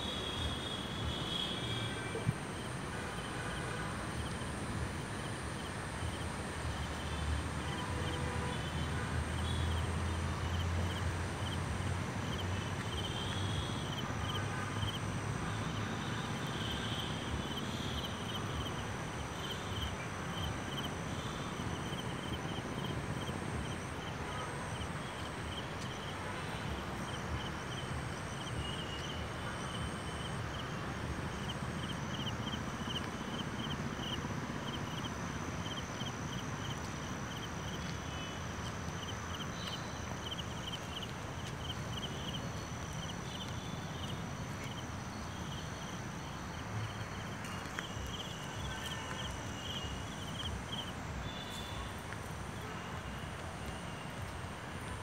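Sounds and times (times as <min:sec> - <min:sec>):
footsteps on road: 0:36.6 - 0:45.8, 0:46.8 - 0:54.7.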